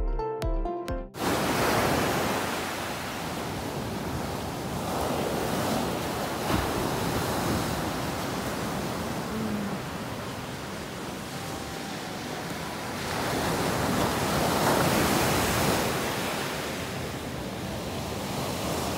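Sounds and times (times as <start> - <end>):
intro music: 0.0 - 1.2
ocean surf breaking on beach: 1.2 - 18.9.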